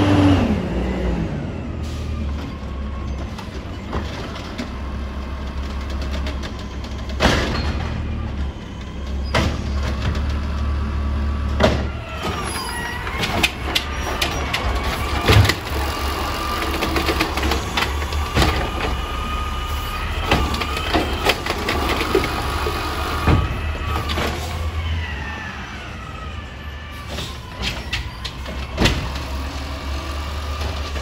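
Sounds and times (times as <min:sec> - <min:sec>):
diesel engine rumbling: 0:00.0 - 0:31.0
sharp clanks and bangs: 0:06.2 - 0:08.2.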